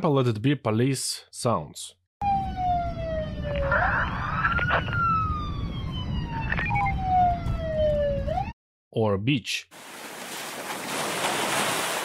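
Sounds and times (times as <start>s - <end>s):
police siren wailing: 2.2s - 8.6s.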